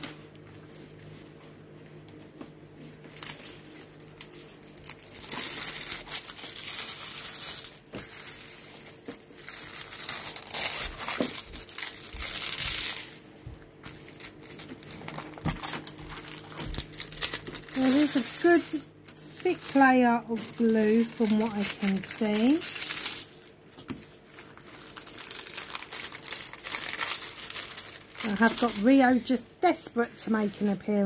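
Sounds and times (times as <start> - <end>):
plastic film crinkling: 2.8 - 31.0.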